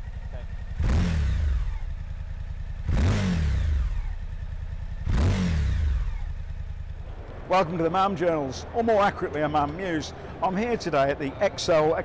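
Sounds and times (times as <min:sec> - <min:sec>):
motorcycle engine revving: 0:00.0 - 0:07.5.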